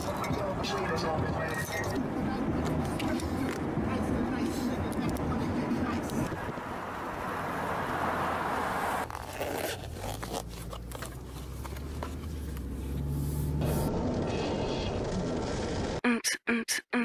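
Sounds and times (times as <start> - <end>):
zipper pulled: 9.0 - 13.9
low hum: 12.8 - 16.0.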